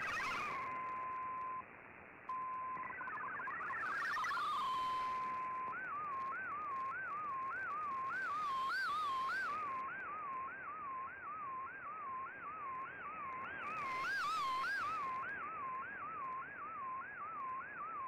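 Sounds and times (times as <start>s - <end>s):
swooping digital radio tone: 0.0s - 1.6s, 2.3s - 6.8s.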